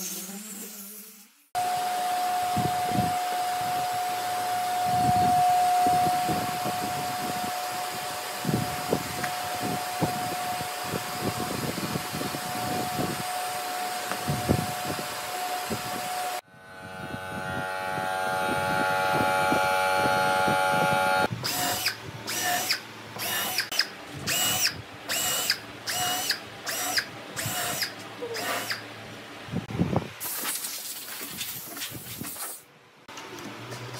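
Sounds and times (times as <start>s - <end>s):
shop vacuum running: 1.6s - 23.6s
power tool running in bursts: 1.6s - 23.7s.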